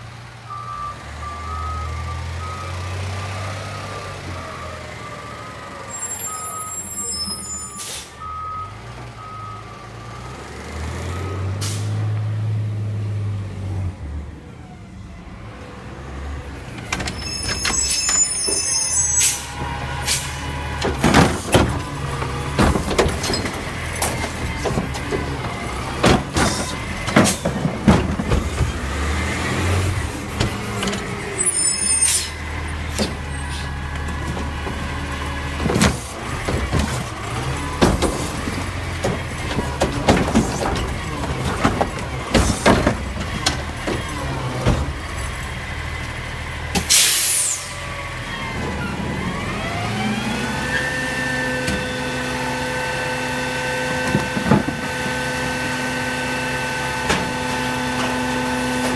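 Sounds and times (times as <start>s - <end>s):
diesel engine revving: 0.0s - 58.9s
truck reversing alarm beeping: 0.4s - 12.2s, 17.1s - 27.5s.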